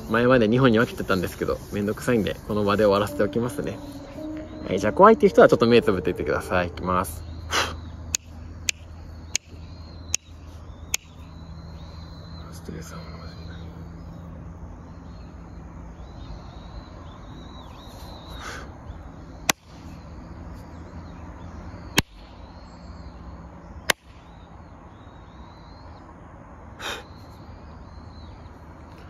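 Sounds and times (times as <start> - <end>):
steady low hum: 0.0 - 17.9
birds calling: 0.0 - 29.0.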